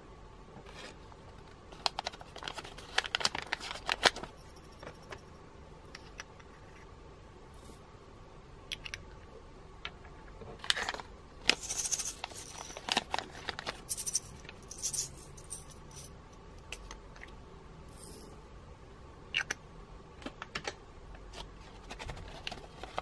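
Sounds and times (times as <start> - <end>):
beads rattling: 11.5 - 16.2, 17.9 - 18.4.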